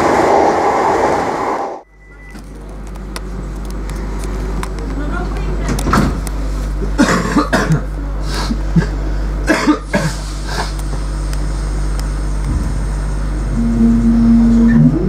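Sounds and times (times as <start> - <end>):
electric train hum: 0.0 - 15.0
person coughing: 7.0 - 7.8, 8.7 - 10.8.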